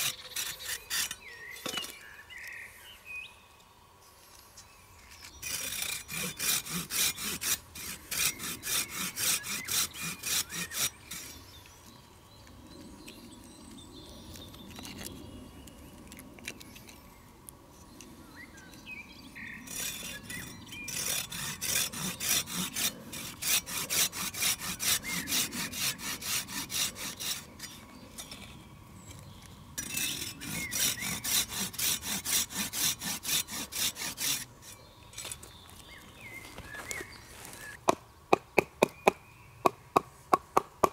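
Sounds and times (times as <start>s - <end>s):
pruning saw cutting log: 0.0s - 2.0s, 5.2s - 11.7s, 18.6s - 28.6s, 29.2s - 35.6s.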